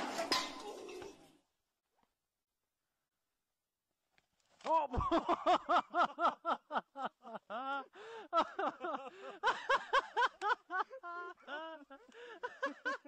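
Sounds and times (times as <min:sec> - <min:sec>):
person laughing: 0:04.7 - 0:13.0
breathy gasps: 0:07.7 - 0:08.4, 0:09.0 - 0:09.5, 0:11.0 - 0:12.6.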